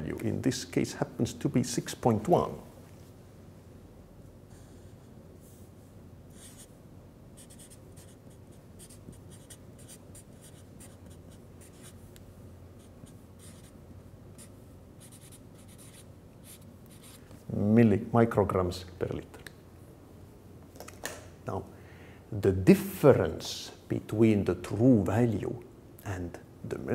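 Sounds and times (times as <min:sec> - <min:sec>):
marker pen writing on paper: 0:06.3 - 0:06.7, 0:07.4 - 0:12.0, 0:12.8 - 0:13.8, 0:14.4 - 0:17.2.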